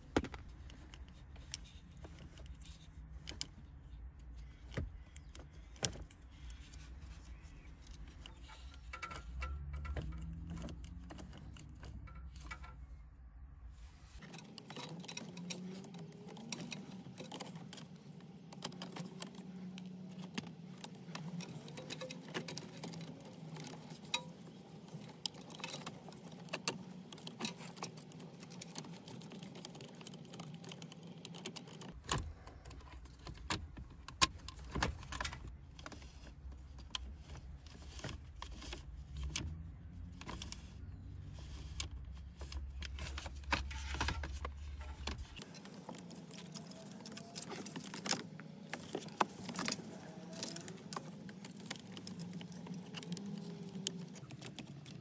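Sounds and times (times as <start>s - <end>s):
hard plastic clicks and rattles: 14.2s - 55.0s.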